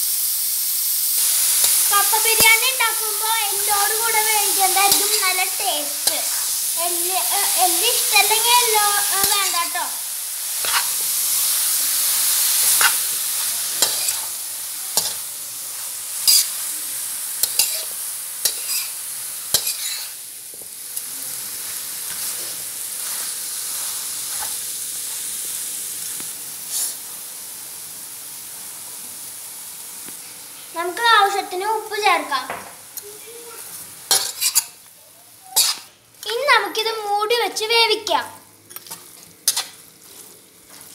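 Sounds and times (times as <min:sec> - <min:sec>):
meat sizzling in a pan: 0:00.0 - 0:40.9
spatula scraping and clacking pan: 0:03.8 - 0:06.6, 0:10.6 - 0:11.1, 0:12.6 - 0:13.1, 0:13.8 - 0:14.3, 0:15.0 - 0:15.2, 0:16.2 - 0:16.6, 0:17.4 - 0:20.2, 0:34.1 - 0:34.8, 0:35.5 - 0:36.4, 0:38.7 - 0:40.9.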